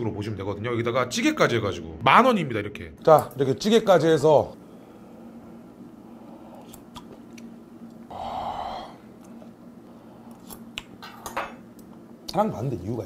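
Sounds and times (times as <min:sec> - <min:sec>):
man chewing food: 0:06.3 - 0:08.1, 0:09.0 - 0:12.0
wet mouth clicks: 0:06.5 - 0:08.0, 0:10.2 - 0:11.9.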